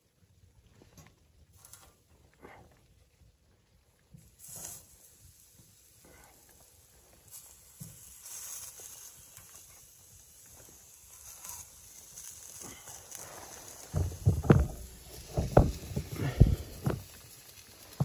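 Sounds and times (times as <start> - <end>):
faint steady hiss: 0.0 - 18.0
low thumps and knocks: 13.9 - 17.1.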